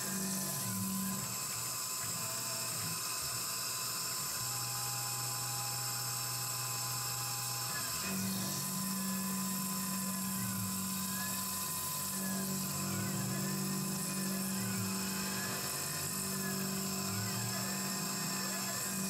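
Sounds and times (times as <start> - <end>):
milling machine cutting metal: 0.0 - 19.0
faint whines rising and falling: 7.7 - 19.0.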